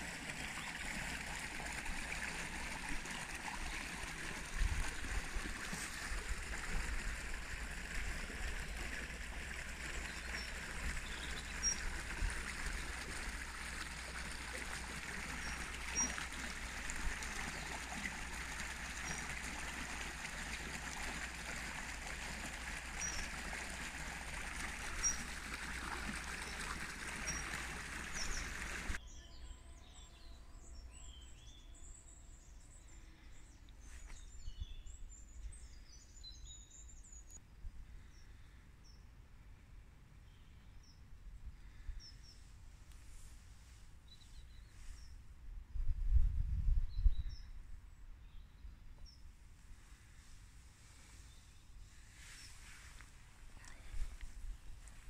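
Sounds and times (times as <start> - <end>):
birdsong with chirps and trills: 8.6 - 37.4.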